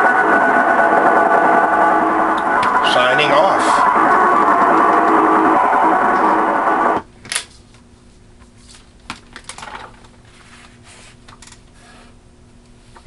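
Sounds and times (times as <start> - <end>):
shortwave radio audio: 0.0 - 7.0
faint steady hum: 0.0 - 13.0.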